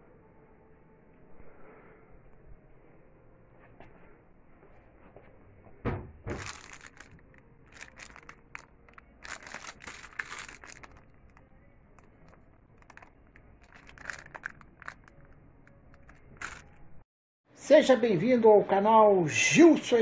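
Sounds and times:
plastic packaging crinkling: 0:06.3 - 0:16.8.

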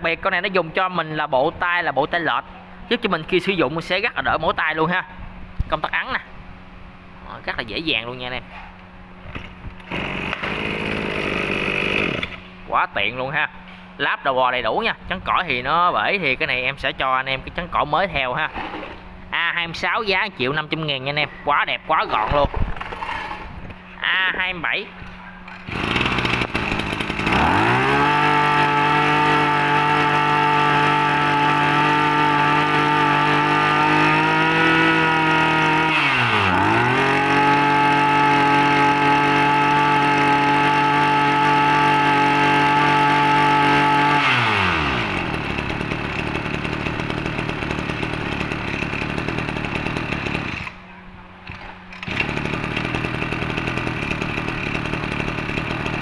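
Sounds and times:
brush cutter engine revving: 0:09.3 - 0:12.5, 0:25.5 - 0:50.8, 0:51.4 - 0:56.0.

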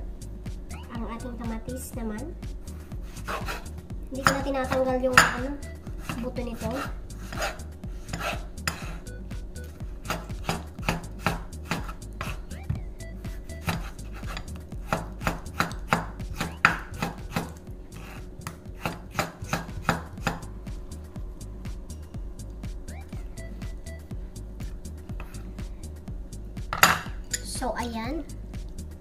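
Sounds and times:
knife slicing tomato on board: 0:03.1 - 0:05.4, 0:06.0 - 0:09.0, 0:10.0 - 0:12.4, 0:13.6 - 0:20.5.

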